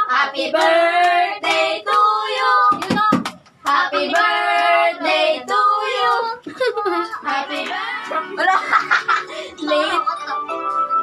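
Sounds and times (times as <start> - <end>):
group singing: 0.0 - 8.5.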